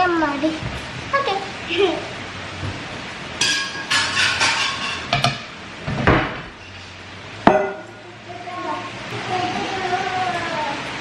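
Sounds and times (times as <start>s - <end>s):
steel vessels clinking: 3.4s - 5.5s, 7.5s - 8.1s.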